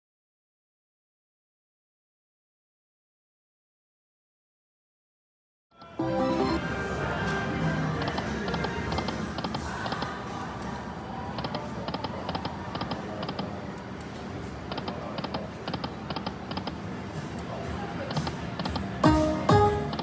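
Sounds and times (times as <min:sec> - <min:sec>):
casino background din: 0:05.9 - 0:20.0
slot machine electronic clicks: 0:06.0 - 0:06.6, 0:18.6 - 0:20.0
background music: 0:06.0 - 0:09.5, 0:19.0 - 0:20.0.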